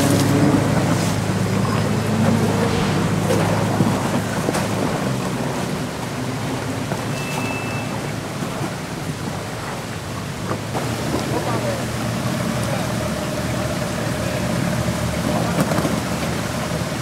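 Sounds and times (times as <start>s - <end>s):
off-road vehicle engine at low revs: 0.0s - 17.0s.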